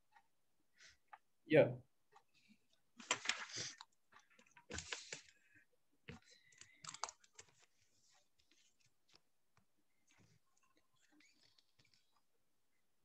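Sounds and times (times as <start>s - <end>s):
faint keyboard typing and clicking: 2.1s - 12.4s.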